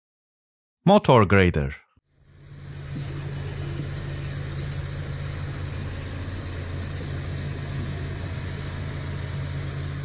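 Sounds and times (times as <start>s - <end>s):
diesel engine droning: 2.1s - 10.0s.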